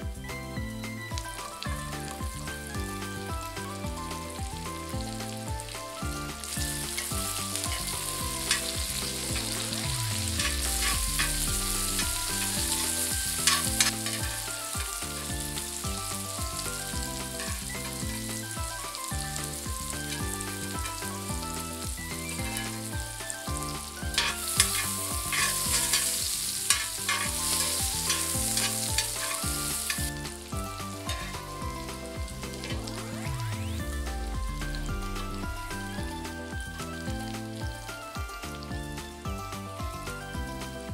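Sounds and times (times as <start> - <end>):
soft background music: 0.0 - 40.9
vegetables sizzling in oil: 0.8 - 38.9
metal tongs clicking on pan: 13.4 - 14.8, 24.1 - 30.1.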